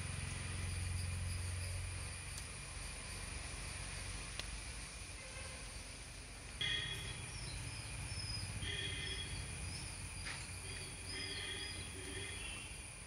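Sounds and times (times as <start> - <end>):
insect or bird chirping: 0.0 - 13.0.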